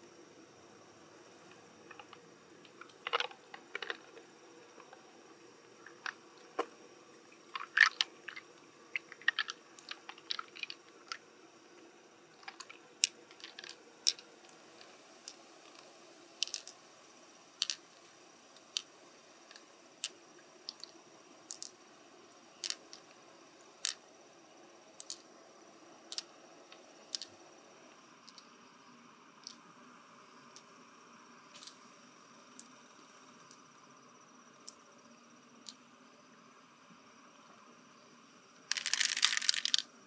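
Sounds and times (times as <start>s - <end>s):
shell clicks and crunches: 1.9s - 4.2s, 7.5s - 11.2s, 12.4s - 16.8s, 17.6s - 17.8s, 19.5s - 21.8s, 22.6s - 23.2s, 25.0s - 25.2s, 38.7s - 39.9s.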